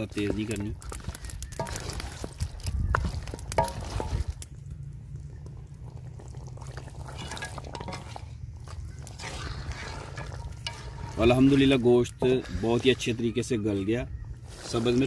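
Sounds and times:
spoon stirring simmering stew: 5.3s - 13.8s.

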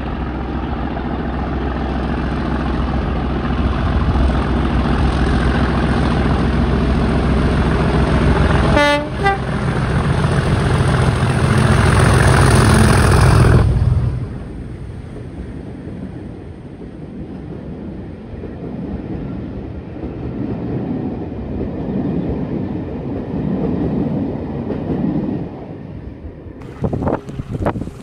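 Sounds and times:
diesel locomotive engine thrash: 0.0s - 16.0s, 26.6s - 28.0s
two-tone train horn: 8.6s - 9.8s.

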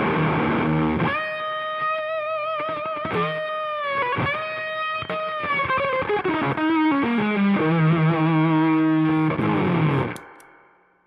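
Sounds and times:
distorted electric guitar: 0.0s - 10.6s
clicks: 10.1s - 10.6s.

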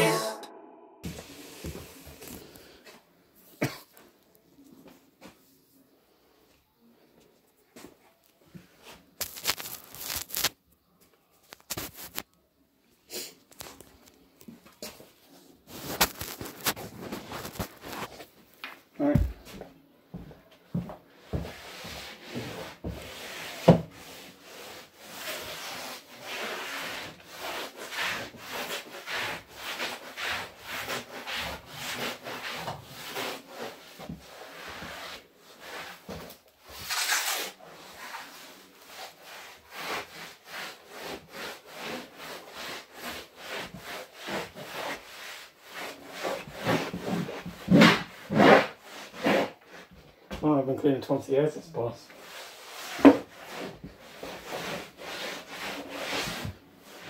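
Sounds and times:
floor scrubbing strokes: 8.8s - 10.5s, 21.3s - 47.5s, 52.2s - 57.0s.

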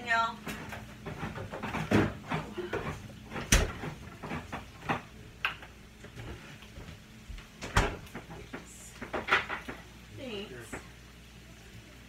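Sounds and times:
kitchen knocks and clunks: 0.4s - 9.9s.

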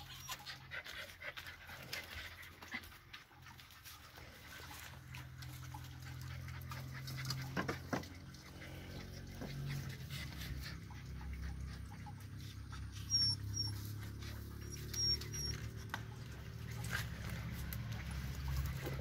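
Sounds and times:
dog high chirps: 0.0s - 0.6s, 12.9s - 15.9s
dog panting: 0.0s - 19.0s.

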